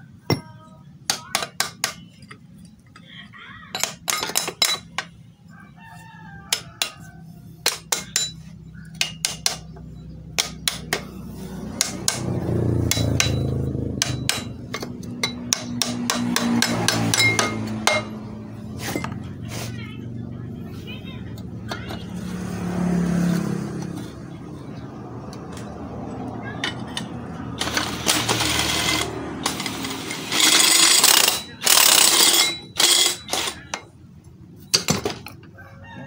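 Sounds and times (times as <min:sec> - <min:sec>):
rooster crowing: 0:05.5 - 0:07.6, 0:35.5 - 0:36.0
low engine hum: 0:09.7 - 0:30.2.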